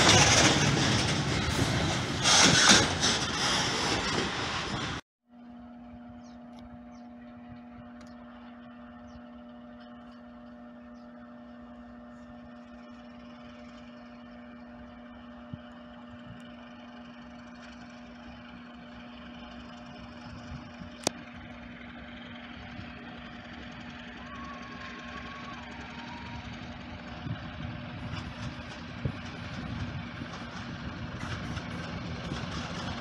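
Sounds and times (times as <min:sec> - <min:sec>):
distant freight locomotive rumble: 0:00.0 - 0:05.0, 0:05.8 - 0:33.0
mechanical hum: 0:04.8 - 0:21.7.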